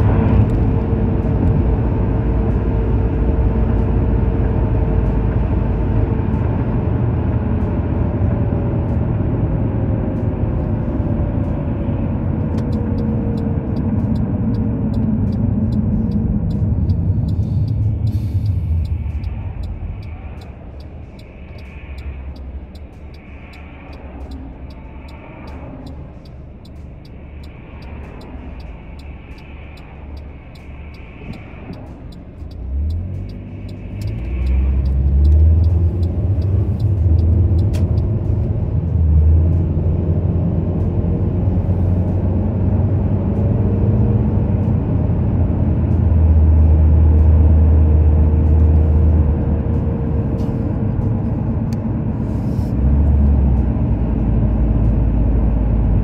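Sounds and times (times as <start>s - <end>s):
car engine accelerating: 0.0s - 56.0s
road noise inside car: 0.0s - 56.0s.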